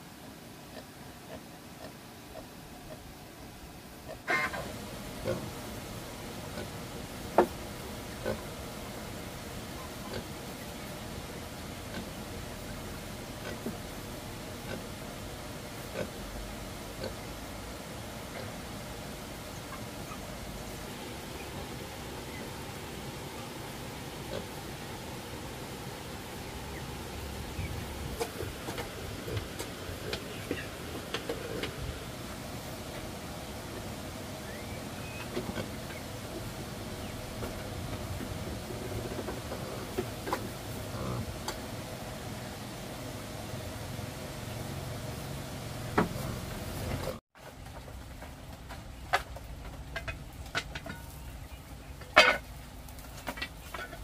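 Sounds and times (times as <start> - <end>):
steady background hiss: 0.0 - 54.0
animals moving about a pen: 4.1 - 41.8, 45.9 - 54.0
faint bird chirps: 34.4 - 36.0.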